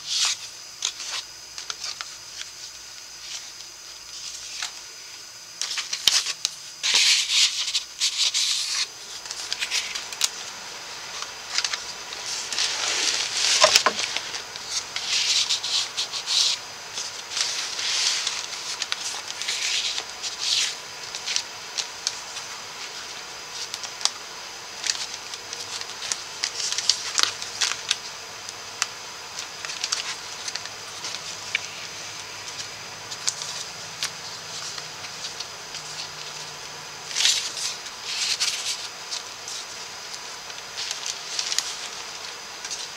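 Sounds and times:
paper pages rustling: 0:00.0 - 0:04.9, 0:05.6 - 0:42.9.

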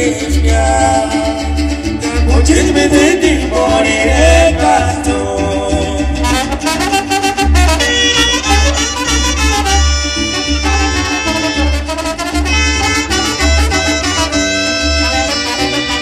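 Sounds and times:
double bass line: 0:00.0 - 0:16.0
guitar: 0:00.0 - 0:16.0
brass: 0:06.2 - 0:16.0.

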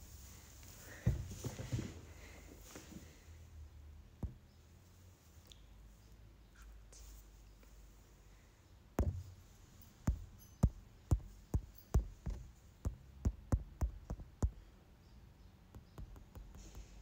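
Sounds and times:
dull handling knocks and clicks: 0:09.0 - 0:09.4, 0:10.0 - 0:14.6.

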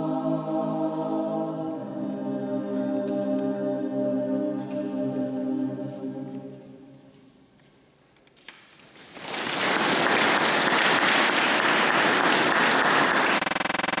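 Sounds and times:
choir singing final chord: 0:00.0 - 0:07.1
audience applause: 0:09.0 - 0:14.0.

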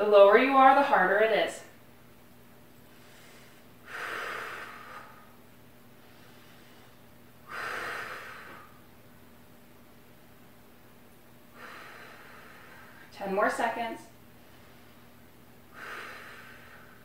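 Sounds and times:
woman breathing hard: 0:02.9 - 0:05.4, 0:06.0 - 0:08.9, 0:11.5 - 0:13.1, 0:15.7 - 0:17.0.

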